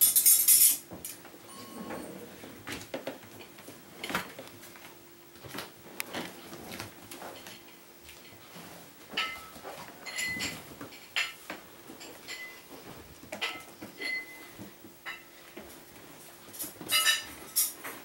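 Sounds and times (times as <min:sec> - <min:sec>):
sharp ringing clinks: 0:16.9 - 0:17.7.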